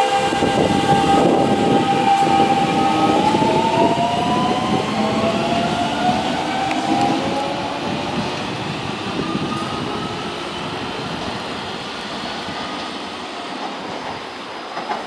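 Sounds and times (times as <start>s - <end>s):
electric train rumbling: 0.0s - 15.0s
faint train whine: 0.0s - 15.0s.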